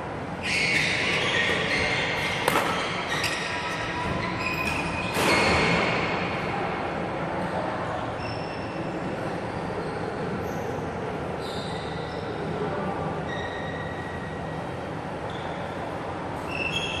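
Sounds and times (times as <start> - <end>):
sneakers squeaking on wooden floor: 0.4 - 5.7
racket striking shuttlecock: 2.4 - 3.1.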